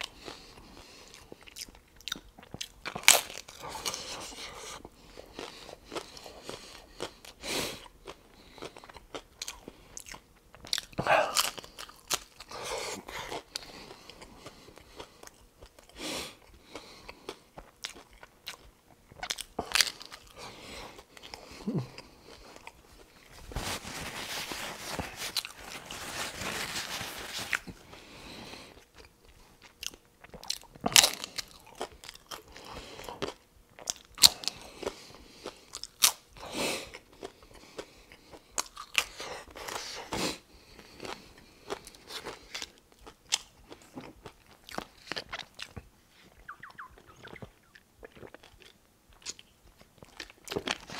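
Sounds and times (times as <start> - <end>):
taco shells crunching: 0.0 - 7.4, 8.0 - 50.9
wet chewing: 0.0 - 23.3, 24.3 - 50.9
paper napkin rustling: 23.3 - 27.8.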